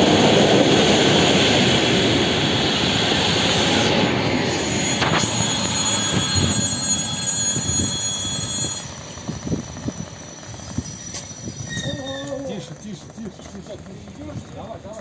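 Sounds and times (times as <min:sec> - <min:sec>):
passenger train rushing past: 0:00.0 - 0:14.2
high steady whine: 0:00.0 - 0:15.0
wheel clacks: 0:08.6 - 0:15.0.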